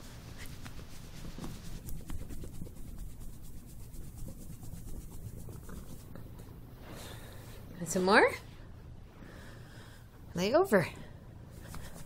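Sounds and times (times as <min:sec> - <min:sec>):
hand rubbing fur: 0:00.0 - 0:06.7
cat purring: 0:04.6 - 0:06.4.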